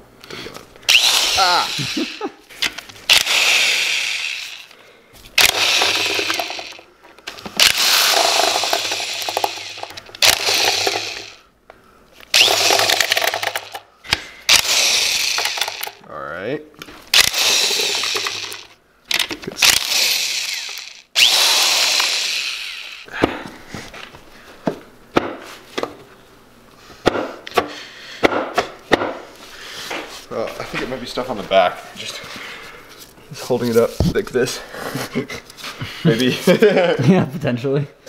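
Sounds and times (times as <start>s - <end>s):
cordless drill spinning: 0.9s - 2.2s, 3.1s - 6.9s, 7.6s - 11.4s, 12.2s - 13.8s, 14.5s - 16.0s, 17.1s - 23.1s.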